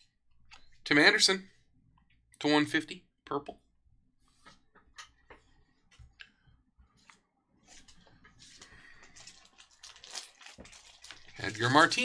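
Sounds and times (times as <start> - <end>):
cards rustling: 7.0 - 12.0.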